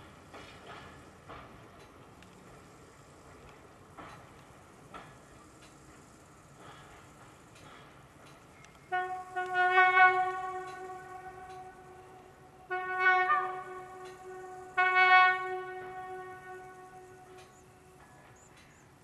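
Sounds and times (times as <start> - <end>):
train horn blasts: 8.8 - 18.1.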